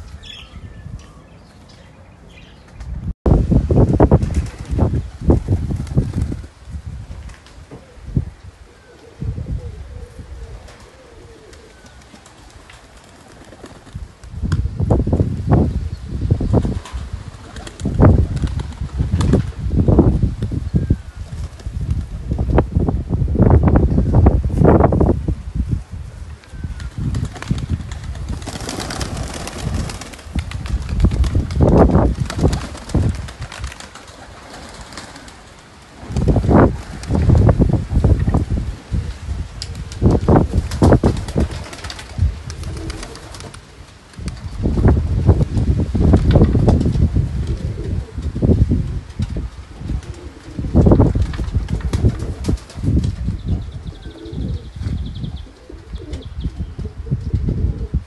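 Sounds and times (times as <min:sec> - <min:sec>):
pigeons cooing: 0:07.7 - 0:13.0, 0:42.5 - 0:43.9, 0:47.5 - 0:48.2, 0:50.0 - 0:50.7, 0:53.8 - 0:58.0
low fluttering rumble: 0:16.4 - 0:33.8.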